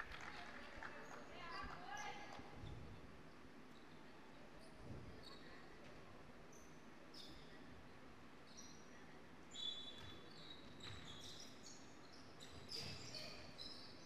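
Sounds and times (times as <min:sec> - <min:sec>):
sneakers squeaking on hardwood: 0:09.9 - 0:11.5, 0:12.4 - 0:13.6.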